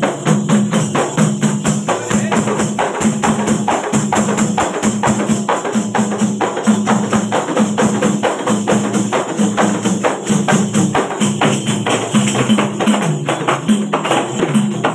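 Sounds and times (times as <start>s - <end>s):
frame drums beaten fast: 0.0s - 14.9s.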